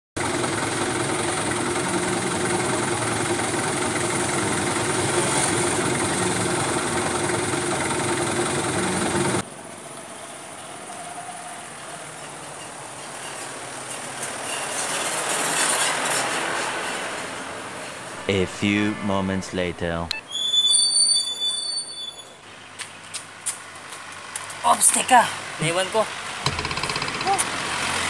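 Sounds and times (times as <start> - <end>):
vehicle engine idling: 0.2 - 9.8
city street traffic: 0.2 - 28.0.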